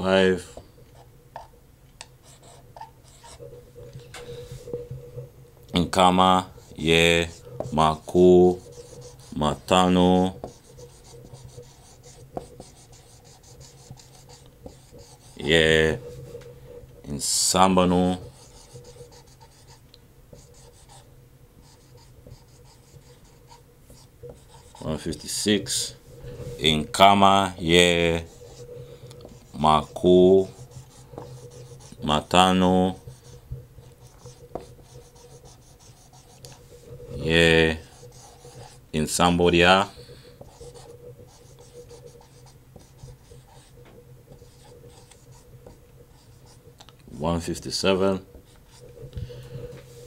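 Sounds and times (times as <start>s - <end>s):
marker writing on whiteboard: 2.2s - 3.4s, 5.9s - 16.2s, 17.1s - 50.0s
man talking: 5.7s - 10.4s, 15.4s - 16.1s, 17.0s - 18.3s, 24.8s - 26.0s, 26.6s - 28.3s, 29.6s - 30.6s, 32.0s - 33.1s, 37.1s - 37.9s, 38.9s - 40.0s, 47.1s - 48.3s.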